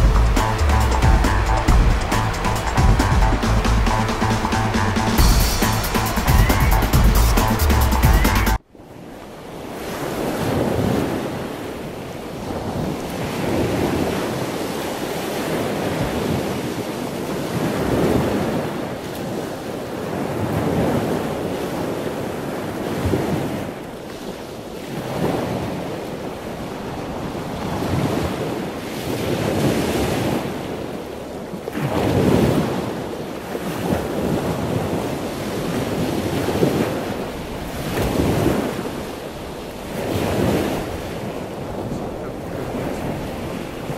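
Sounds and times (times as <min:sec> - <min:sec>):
wind buffeting microphone: 0:09.5 - 0:43.9.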